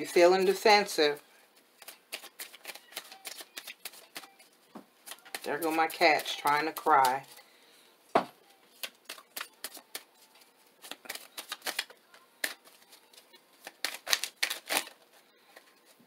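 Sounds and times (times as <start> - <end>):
cards being shuffled: 1.6 - 7.4, 8.7 - 16.0.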